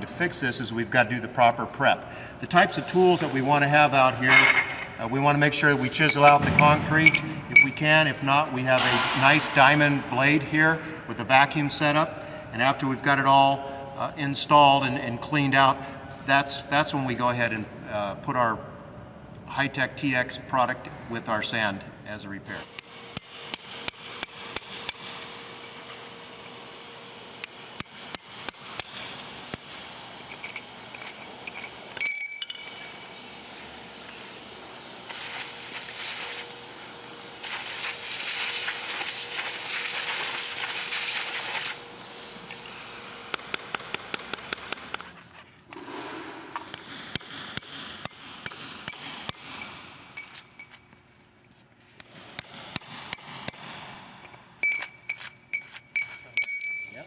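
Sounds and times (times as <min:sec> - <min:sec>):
shop vacuum running: 0:00.0 - 0:18.8, 0:20.4 - 0:51.0
hammer striking chisel on concrete: 0:22.7 - 0:25.2, 0:27.4 - 0:29.8, 0:43.3 - 0:45.2, 0:45.8 - 0:50.8, 0:52.0 - 0:57.0.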